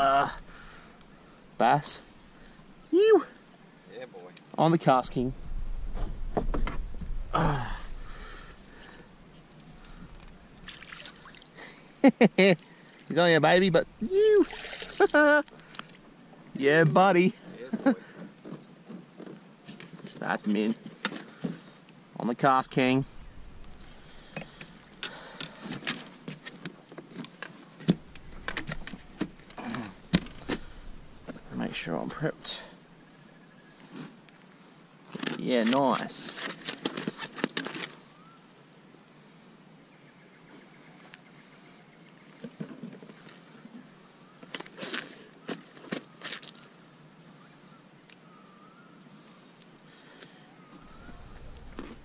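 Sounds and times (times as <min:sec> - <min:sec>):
fishing gear clicks and rustles: 0:07.9 - 0:11.4, 0:14.6 - 0:16.0, 0:22.8 - 0:31.8, 0:35.1 - 0:38.0, 0:44.4 - 0:46.7, 0:50.9 - 0:52.0.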